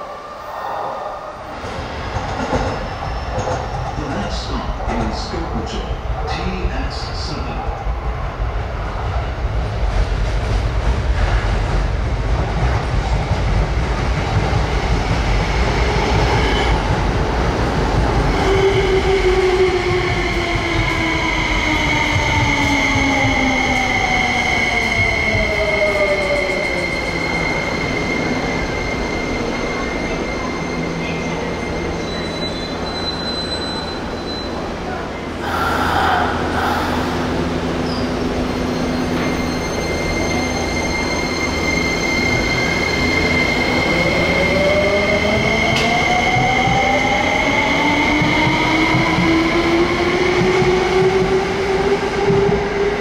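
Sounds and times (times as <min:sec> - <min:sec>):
train wheels rumbling on rails: 0:01.5 - 0:53.0
high brake squeal: 0:28.6 - 0:34.6, 0:37.8 - 0:43.2.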